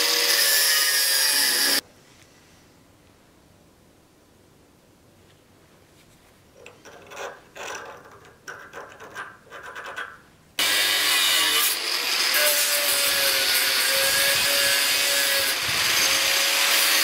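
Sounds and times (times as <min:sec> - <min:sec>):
angle grinder cutting steel: 0:00.0 - 0:01.8, 0:10.6 - 0:17.0.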